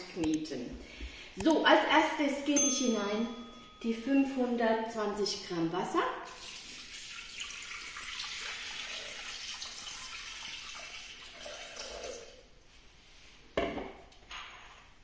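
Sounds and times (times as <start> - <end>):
water pouring into metal bowl: 6.3 - 12.4.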